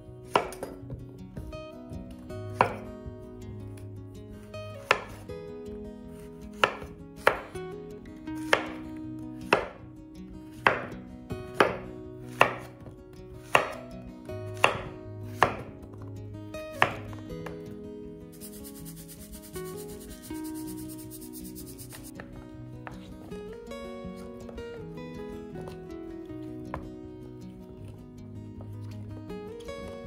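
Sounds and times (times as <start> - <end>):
knife striking cutting board: 0.3 - 0.8, 2.6 - 2.8, 4.8 - 5.2, 6.6 - 7.5, 8.5 - 8.8, 9.5 - 9.8, 10.6 - 10.9, 11.6 - 12.7, 13.4 - 13.8, 14.6 - 15.7, 16.8 - 17.1.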